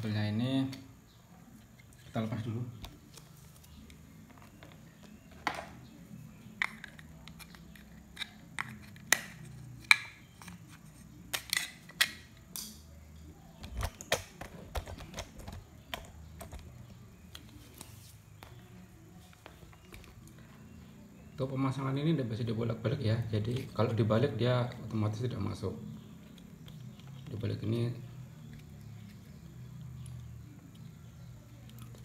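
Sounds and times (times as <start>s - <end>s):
plastic clicks and taps: 6.6s - 10.6s.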